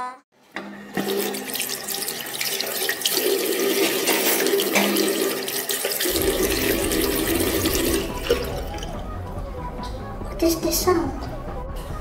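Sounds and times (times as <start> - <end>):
tap water running into sink: 0.6 - 9.0
hands washing under water: 1.0 - 9.0
low rumble: 6.1 - 10.4.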